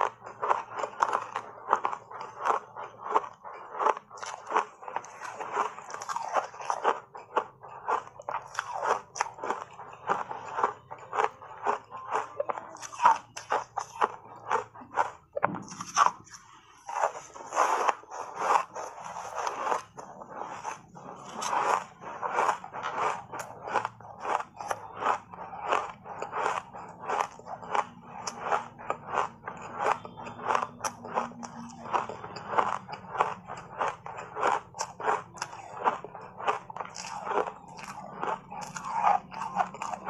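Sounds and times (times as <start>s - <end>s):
ice crunched between teeth: 0.0s - 15.1s, 20.5s - 40.0s.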